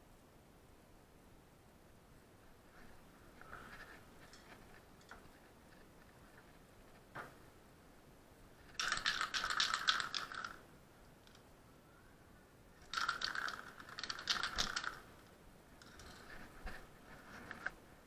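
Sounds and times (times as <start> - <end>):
spray can ball rattling: 8.7 - 10.6, 12.8 - 15.2.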